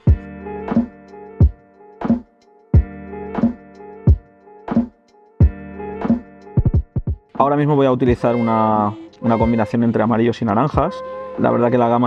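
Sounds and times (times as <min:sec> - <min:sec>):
sustained chords: 0:08.2 - 0:12.0.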